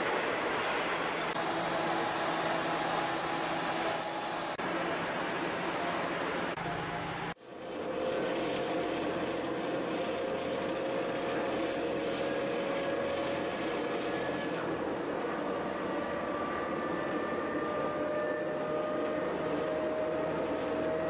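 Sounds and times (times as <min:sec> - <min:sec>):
railcar engine and wheels rumbling: 0:00.0 - 0:21.0.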